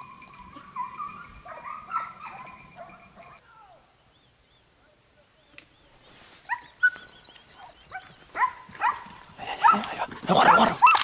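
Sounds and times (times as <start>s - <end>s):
hounds barking and yelping: 0.0s - 3.4s, 6.5s - 11.0s.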